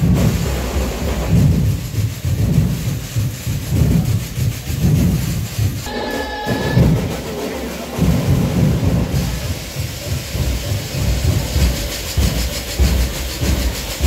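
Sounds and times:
bass drum beat: 0:00.0 - 0:14.0
held high tone: 0:05.9 - 0:08.0.

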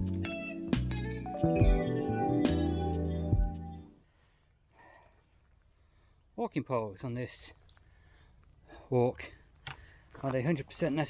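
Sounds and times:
music with held chords: 0:00.0 - 0:04.0.

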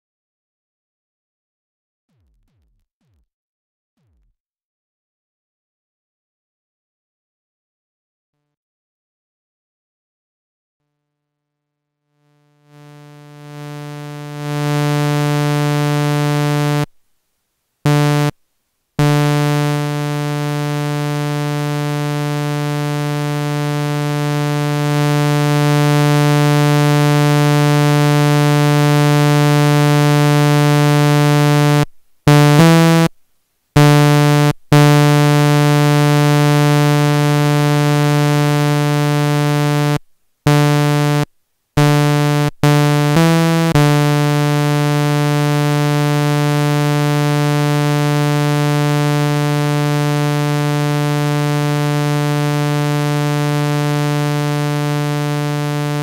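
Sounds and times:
sustained low synthesizer note: 0:41.8 - 0:56.0.

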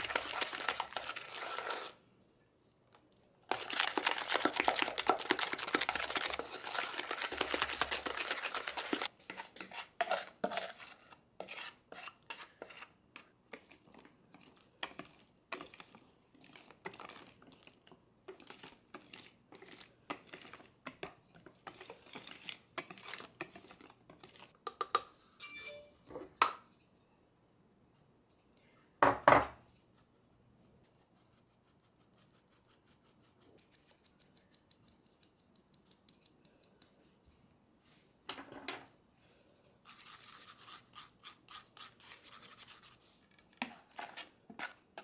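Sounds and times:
whisk beating in steel bowl: 0:03.5 - 0:12.9
whisk strokes in glass bowl: 0:03.5 - 0:12.9, 0:21.6 - 0:24.6.

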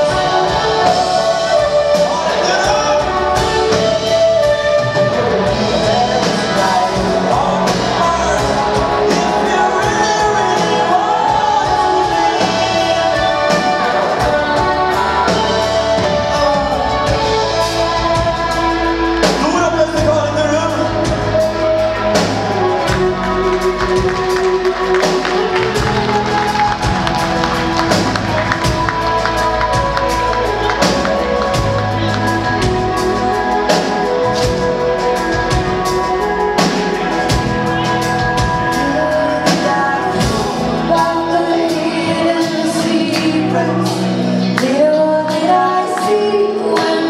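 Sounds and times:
person singing: 0:00.0 - 0:47.0
rock band playing live: 0:00.0 - 0:47.0.

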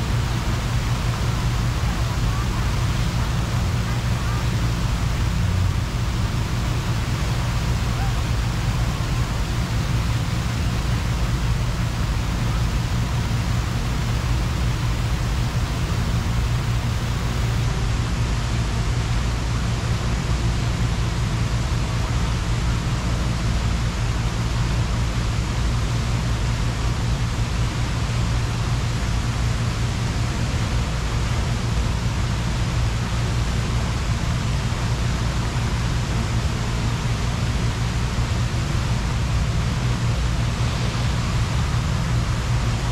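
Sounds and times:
fountain water splashing: 0:00.0 - 0:17.6.

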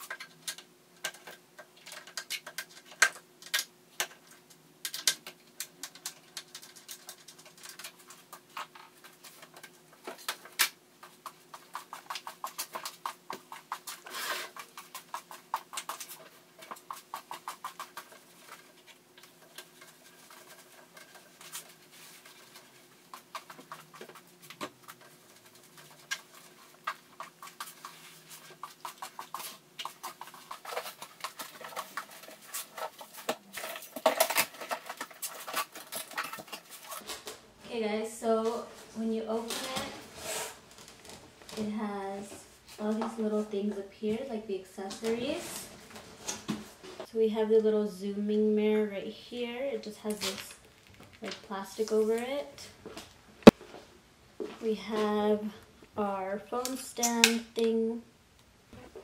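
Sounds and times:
small objects clattering: 0:00.0 - 0:37.4.

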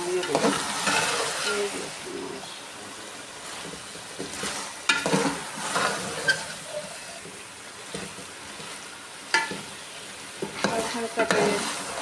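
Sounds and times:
curry sizzling: 0:00.0 - 0:12.0
metal ladle scraping pot: 0:04.4 - 0:07.3, 0:10.6 - 0:12.0.

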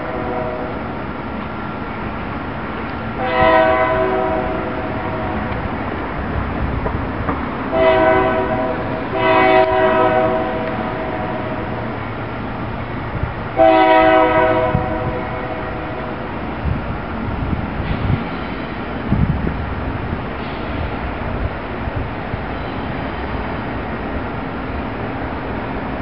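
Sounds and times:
locomotive air horn blasts: 0:00.0 - 0:00.8, 0:03.2 - 0:05.5, 0:07.7 - 0:11.8, 0:13.6 - 0:16.1
train rumble: 0:00.0 - 0:26.0.

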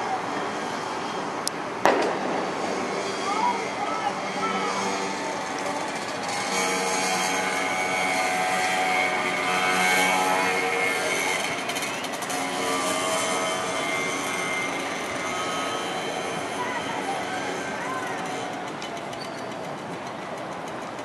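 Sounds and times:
engine drone: 0:00.0 - 0:21.0.

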